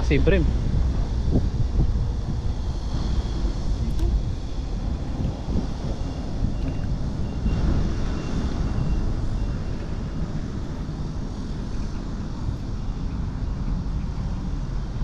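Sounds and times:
road traffic: 0:00.0 - 0:15.0
wind on microphone: 0:00.0 - 0:15.0.

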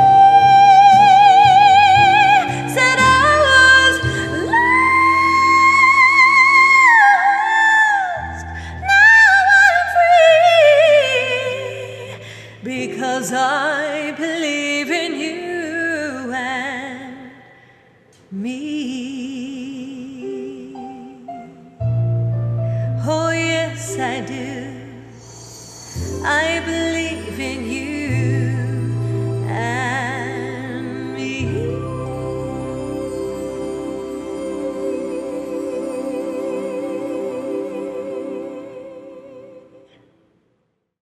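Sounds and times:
woman singing: 0:00.0 - 0:17.5, 0:18.2 - 0:21.8, 0:23.0 - 0:40.0
backing track with bass and chords: 0:21.8 - 0:23.8.

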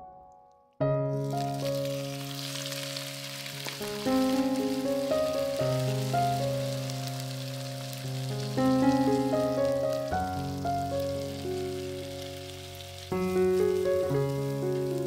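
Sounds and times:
instrumental background music: 0:00.0 - 0:15.0
food sizzling in a pan: 0:01.1 - 0:15.0.

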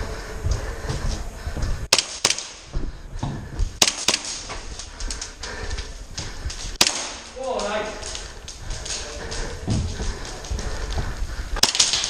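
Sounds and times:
airsoft gunshots: 0:01.9 - 0:02.6, 0:03.8 - 0:04.5, 0:06.8 - 0:07.4.

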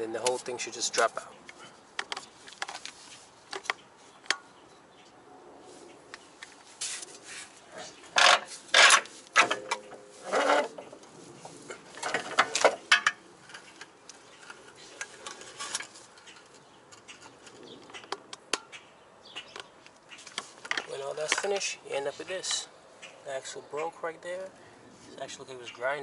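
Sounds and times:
rusty metal parts scraping: 0:07.8 - 0:18.8.

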